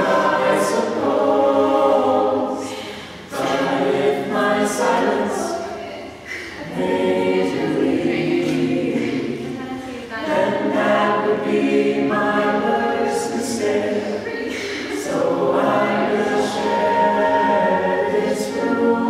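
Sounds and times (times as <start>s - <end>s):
choir singing unaccompanied: 0.0s - 19.0s.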